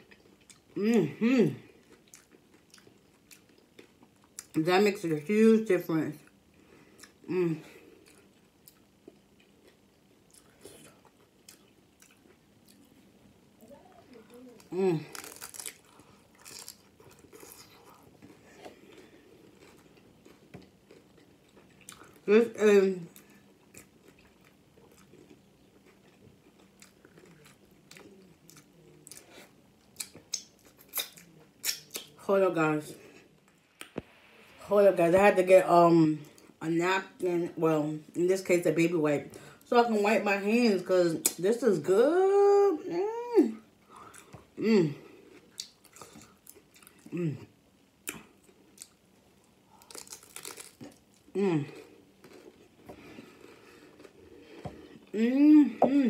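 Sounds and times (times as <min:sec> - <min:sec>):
chewing with crunches: 0:00.0 - 0:00.8, 0:01.6 - 0:04.6, 0:06.2 - 0:22.3, 0:23.1 - 0:32.2, 0:43.9 - 0:47.2, 0:48.0 - 0:55.2.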